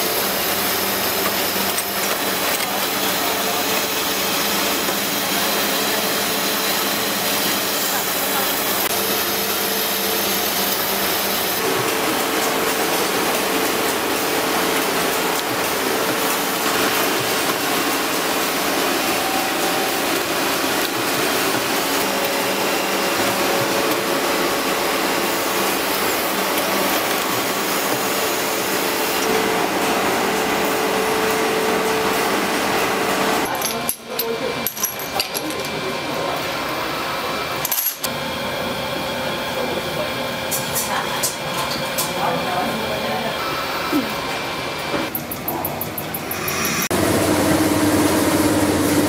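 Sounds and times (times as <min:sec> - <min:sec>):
machinery grinding hiss: 0:00.0 - 0:31.8, 0:46.1 - 0:49.0
machinery hum: 0:00.0 - 0:33.7, 0:34.4 - 0:49.0.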